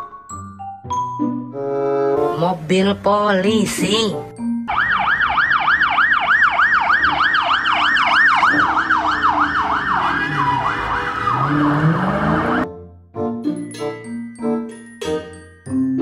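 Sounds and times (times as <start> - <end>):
police siren yelping: 4.7 - 12.7
vehicle engine: 6.7 - 12.7.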